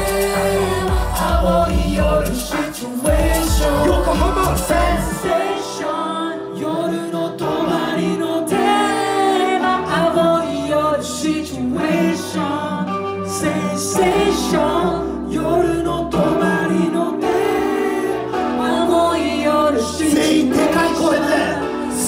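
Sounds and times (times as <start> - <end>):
deep bass: 0.0 - 5.3
pop music over a loudspeaker: 0.0 - 22.0
voices singing: 0.0 - 22.0.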